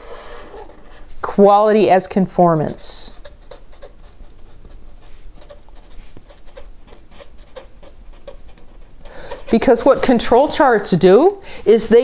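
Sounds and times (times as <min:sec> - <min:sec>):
marker pen writing on paper: 0:02.6 - 0:10.6.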